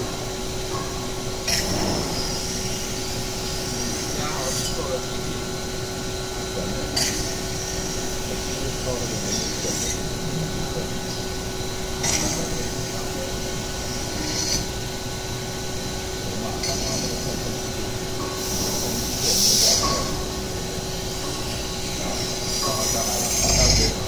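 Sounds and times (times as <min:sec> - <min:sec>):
machine humming: 0:00.0 - 0:24.0.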